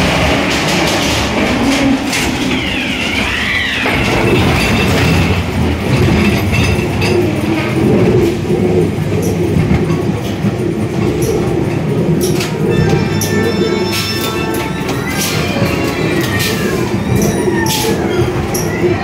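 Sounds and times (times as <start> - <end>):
ride car rumbling on track: 0.0 - 19.0
high wavering tone: 12.3 - 19.0.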